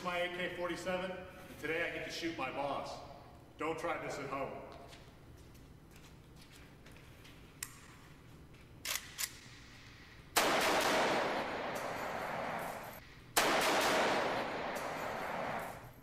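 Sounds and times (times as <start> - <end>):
automatic rifle gunfire: 10.4 - 15.8.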